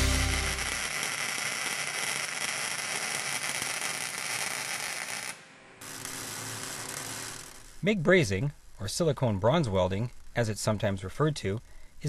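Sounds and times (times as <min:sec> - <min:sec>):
background music: 0:00.0 - 0:00.8
welding arc crackling and hissing: 0:00.0 - 0:12.0.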